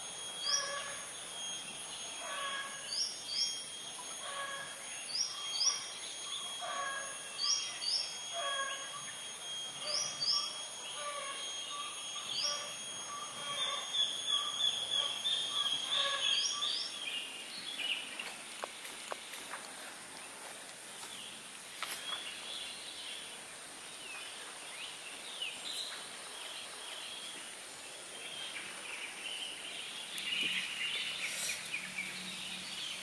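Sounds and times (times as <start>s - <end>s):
steady high ringing: 0.0s - 17.2s
bird chirping call: 0.0s - 18.1s.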